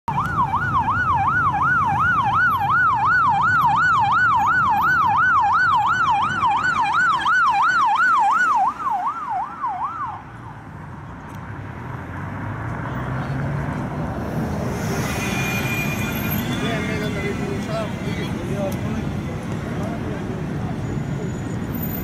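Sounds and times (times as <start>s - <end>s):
electronic yelp siren: 0.1s - 10.2s
city traffic noise: 0.1s - 22.0s.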